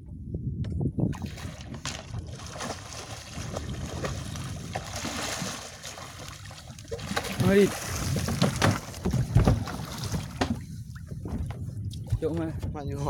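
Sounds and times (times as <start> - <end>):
wind and water noise: 0.0 - 13.0
fish splashing at surface: 1.2 - 8.9
knocks on boat deck: 8.2 - 10.6.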